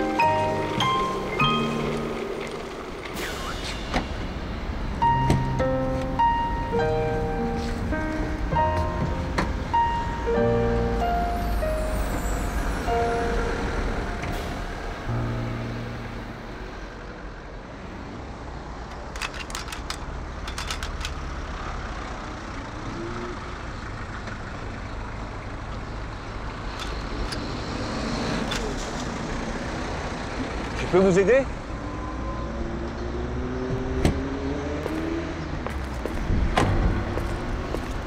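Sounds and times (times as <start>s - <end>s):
background music: 0.0s - 16.8s
low rumble of traffic: 0.0s - 38.0s
shopping trolley lock clicking: 18.9s - 21.2s.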